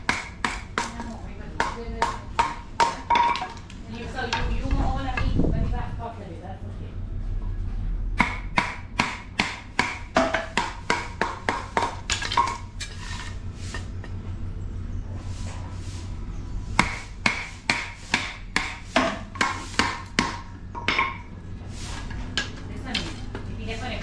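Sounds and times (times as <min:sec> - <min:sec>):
wood chopping strokes: 0:00.0 - 0:03.1, 0:08.2 - 0:13.9, 0:16.7 - 0:20.5.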